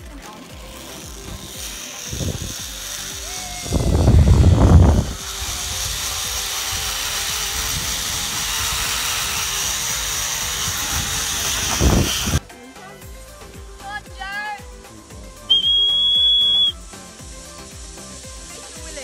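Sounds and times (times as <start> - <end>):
zip-line trolley whirring on cable: 0.0 - 13.4, 14.8 - 19.0
low wind buffeting: 2.1 - 2.8, 3.5 - 12.4.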